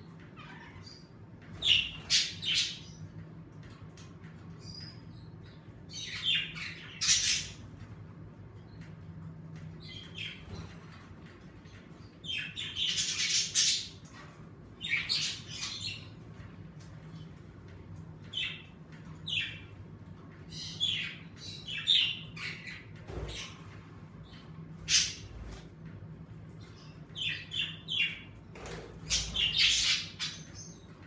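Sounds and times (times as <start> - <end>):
low steady hum: 0.0 - 31.0
budgerigars chirping and squawking: 0.4 - 3.1, 6.0 - 7.6, 12.3 - 14.1, 20.6 - 25.6, 26.6 - 31.0.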